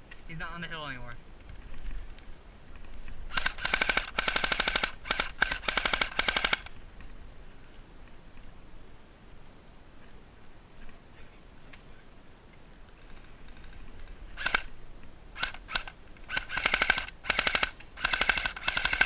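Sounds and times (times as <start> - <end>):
airsoft gun bursts: 3.3 - 6.7, 14.4 - 14.7, 15.4 - 19.0.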